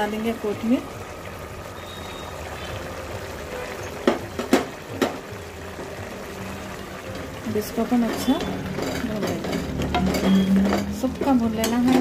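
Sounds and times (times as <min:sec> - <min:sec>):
pot bubbling: 0:00.0 - 0:12.0
wooden spoon knocking a pot: 0:04.0 - 0:05.9, 0:07.9 - 0:12.0.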